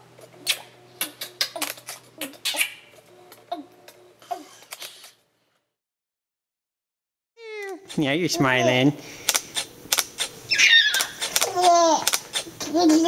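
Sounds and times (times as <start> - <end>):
baby giggling and babbling: 0.4 - 2.7, 3.5 - 4.7, 7.4 - 8.9, 10.5 - 13.0
camera shutter clicks: 9.2 - 12.5.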